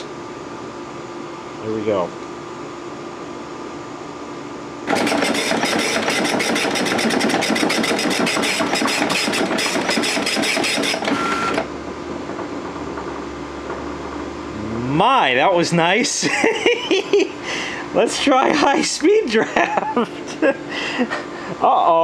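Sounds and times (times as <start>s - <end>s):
dot matrix printer printing: 4.9s - 11.7s
low hum: 11.6s - 15.7s.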